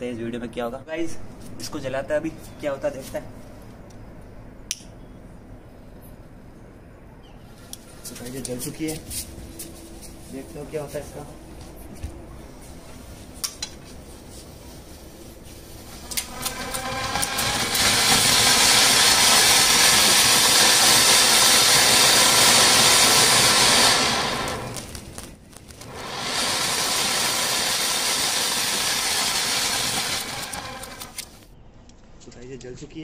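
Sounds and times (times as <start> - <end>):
firework fountain hissing: 15.4 - 31.6.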